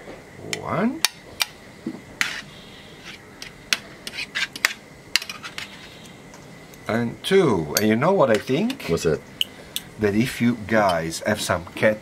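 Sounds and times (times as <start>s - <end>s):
cutlery clinking and scraping on trays: 2.2s - 6.2s.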